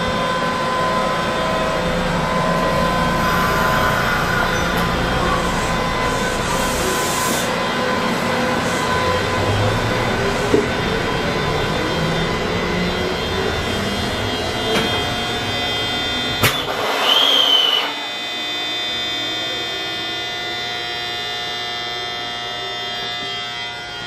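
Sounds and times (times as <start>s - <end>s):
electric train humming: 0.0s - 24.0s
high whistle-like tone: 17.0s - 18.1s.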